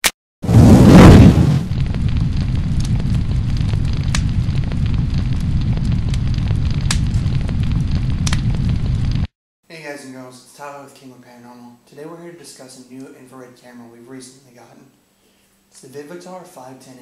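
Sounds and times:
burst of flame: 0.4s - 9.3s
fire crackles: 0.4s - 9.3s
low rumble of burning fire: 0.4s - 9.3s.

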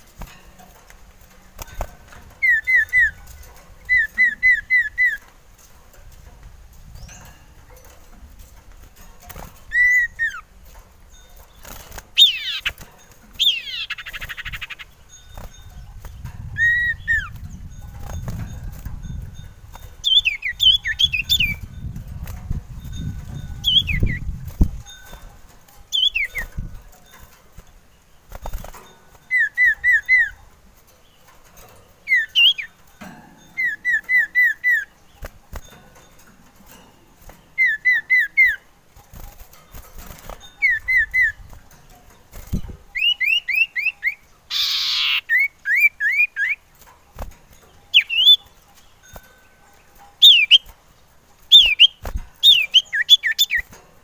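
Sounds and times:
bird whistling calls: 2.4s - 3.2s, 3.9s - 5.2s, 9.7s - 10.5s, 16.6s - 17.4s, 23.6s - 24.2s, 25.9s - 26.5s, 29.2s - 30.4s, 37.6s - 38.6s, 43.0s - 46.7s, 47.9s - 48.4s, 50.2s - 50.7s, 51.5s - 53.7s.

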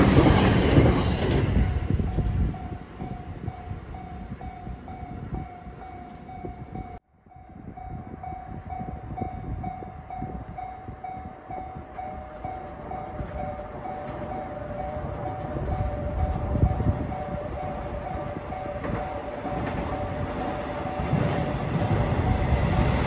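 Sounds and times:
train rumbling: 0.0s - 23.0s
level crossing warning bell ringing: 1.6s - 23.0s
lower-pitched crossing bell: 2.0s - 20.2s.

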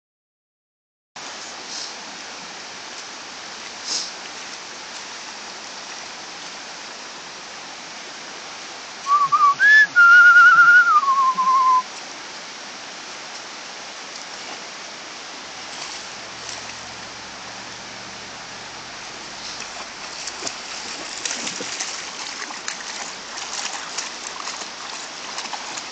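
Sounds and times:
creek water rushing: 1.2s - 25.9s
person whistling: 9.1s - 11.9s.

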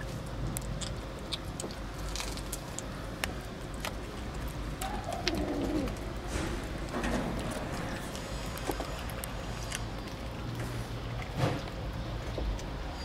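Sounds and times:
kittens eating with smacking sounds: 0.0s - 13.0s
low cooing call: 4.8s - 6.0s.

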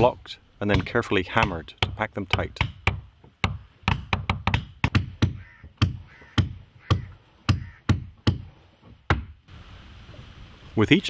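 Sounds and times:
wooden mallet knocking on wood: 0.7s - 8.5s.

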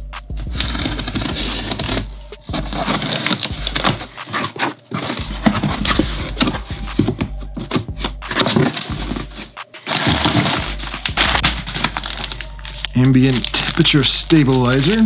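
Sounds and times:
cardboard flaps scraping and crackling: 0.4s - 15.0s
knife slitting packing tape: 0.5s - 15.0s.

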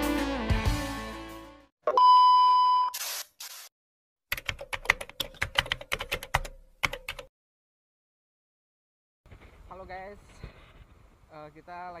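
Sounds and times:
intro music: 0.0s - 1.6s
electronic beep: 1.9s - 3.0s.

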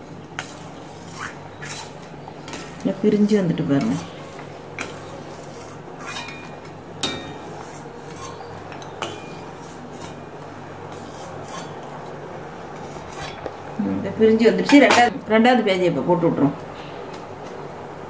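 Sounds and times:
steady low hum: 0.0s - 18.0s
metal ladle clinking on pot: 6.1s - 7.4s.

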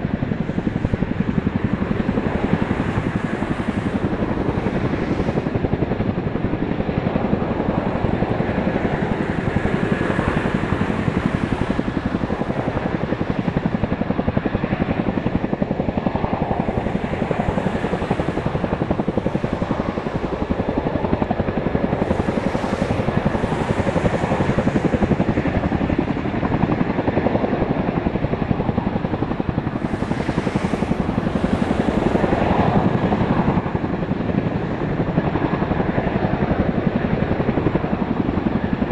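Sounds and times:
helicopter rotor blades beating: 0.0s - 38.9s.

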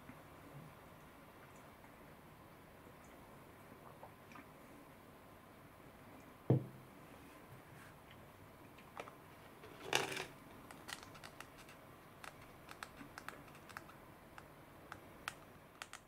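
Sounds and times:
plastic tray scraping: 9.6s - 11.8s
light plastic clicks: 10.7s - 16.0s.

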